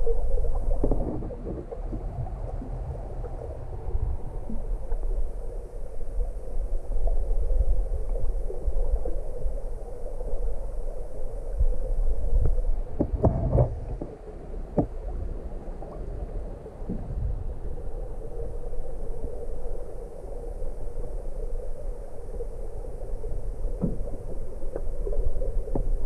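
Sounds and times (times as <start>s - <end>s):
muffled underwater river rush: 0.0s - 26.0s.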